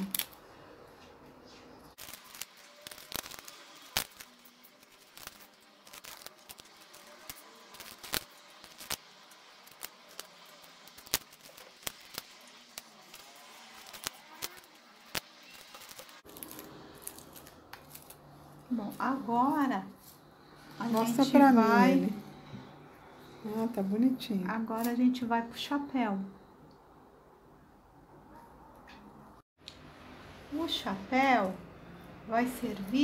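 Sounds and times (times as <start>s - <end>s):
scissors snipping dry husk: 2.0s - 19.2s.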